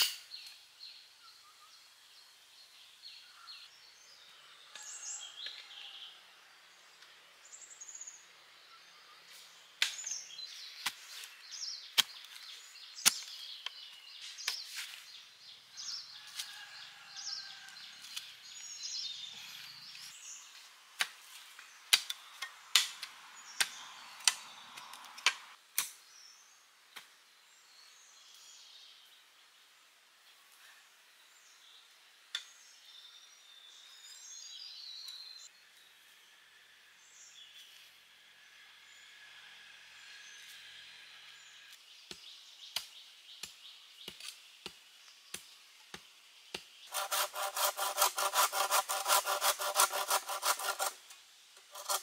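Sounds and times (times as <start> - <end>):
small birds chirping: 0.0 - 16.6, 17.3 - 20.8, 40.0 - 52.0.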